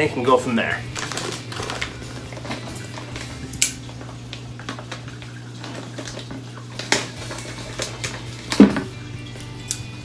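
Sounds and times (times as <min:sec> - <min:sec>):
plastic bag of sand rustling: 0:00.6 - 0:03.4.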